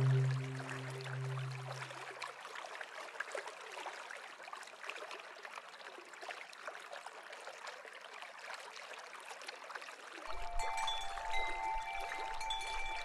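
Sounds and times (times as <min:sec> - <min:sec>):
small stream trickling: 0:00.0 - 0:13.0.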